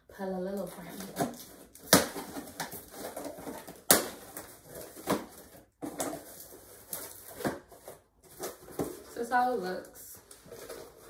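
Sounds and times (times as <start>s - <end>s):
cardboard and tape crackling: 0.3s - 11.0s
sharp cardboard crack: 0.9s - 6.3s.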